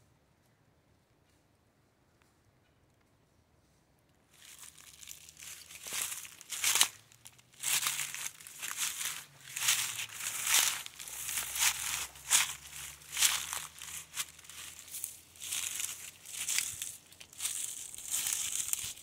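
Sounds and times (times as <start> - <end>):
footsteps crunching dry leaves: 4.3 - 19.0.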